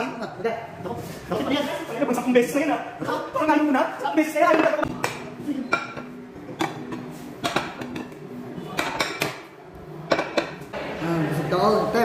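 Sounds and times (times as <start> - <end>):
ceramic plates clinking: 4.4 - 10.6.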